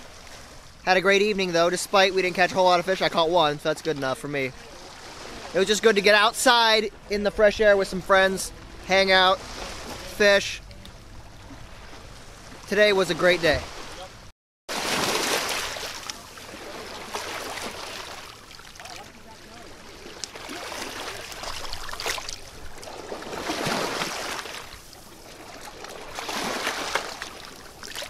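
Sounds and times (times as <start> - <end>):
river water washing over rocks: 14.7 - 28.0.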